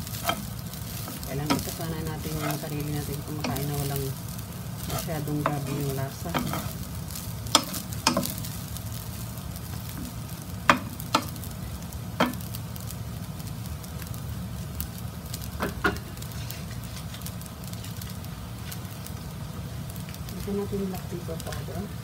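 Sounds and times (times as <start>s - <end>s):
spatula stirring and scraping: 0.0s - 11.4s, 16.0s - 18.9s
rice sizzling in a frying pan: 0.0s - 22.0s.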